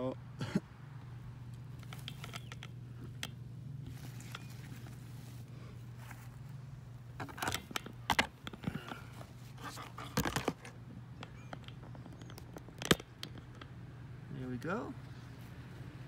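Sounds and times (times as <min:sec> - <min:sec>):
low steady hum: 0:00.0 - 0:16.0
camera handling knocks and rustles: 0:01.8 - 0:05.1, 0:07.1 - 0:13.8.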